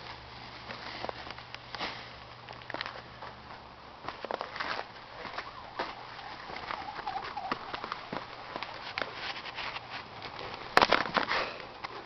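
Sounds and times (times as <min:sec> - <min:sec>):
faint wavering whine: 0:05.0 - 0:08.9.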